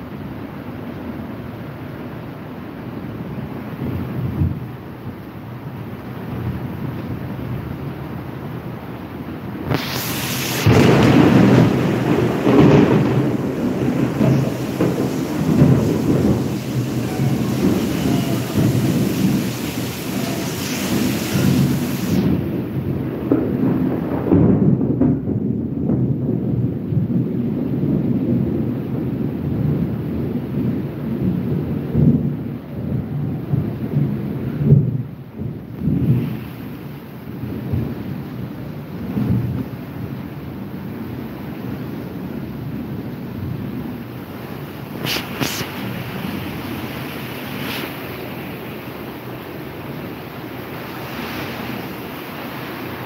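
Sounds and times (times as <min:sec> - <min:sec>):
rain hissing: 0:08.4 - 0:24.3, 0:35.6 - 0:53.0
thunder rumbling: 0:09.5 - 0:53.0.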